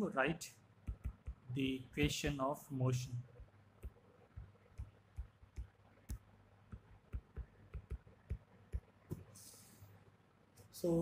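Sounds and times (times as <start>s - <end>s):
stylus tapping on glass screen: 0.8s - 2.3s, 3.3s - 9.4s.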